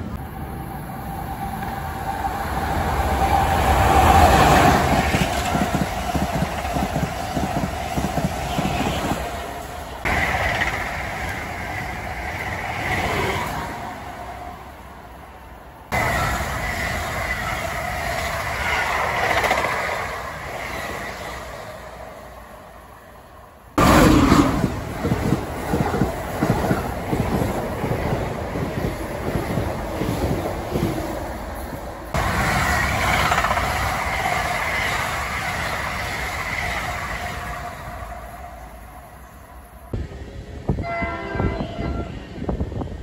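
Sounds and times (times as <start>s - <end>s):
electric trains passing at speed: 0.0s - 43.0s.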